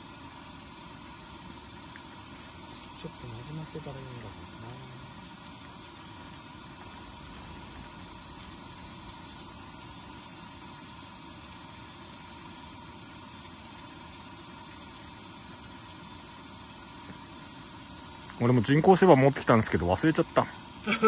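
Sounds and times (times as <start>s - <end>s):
low hiss and hum: 0.0s - 21.0s.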